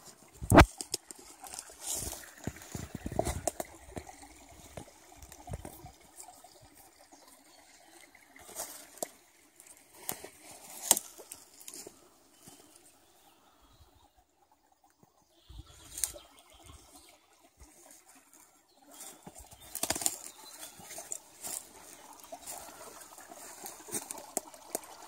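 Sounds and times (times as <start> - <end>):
stream trickling: 0.0 - 25.0
footsteps rustling through undergrowth: 0.6 - 3.7, 19.0 - 24.5
twigs snapping: 10.1 - 11.8, 19.7 - 20.3.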